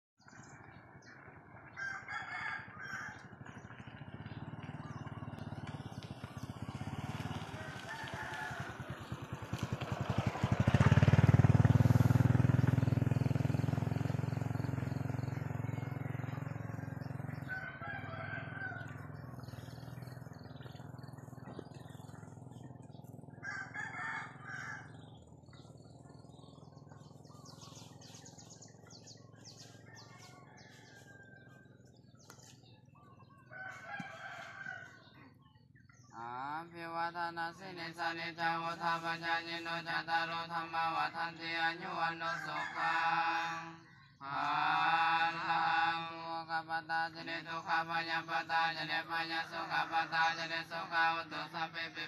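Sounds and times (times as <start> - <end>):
vehicle engine rumble: 0.2 - 52.0
roosters crowing: 1.6 - 36.9, 38.7 - 52.0
small birds chirping: 2.8 - 8.4, 12.4 - 36.6.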